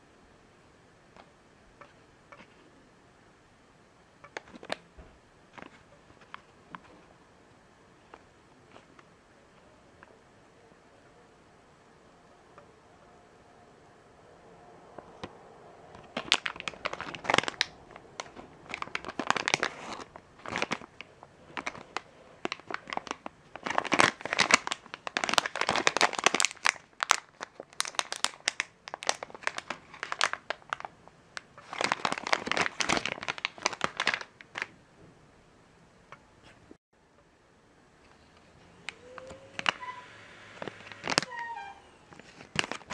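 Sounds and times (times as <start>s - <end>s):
plastic bag crinkling: 4.3s - 4.8s, 16.0s - 34.7s, 40.6s - 42.9s.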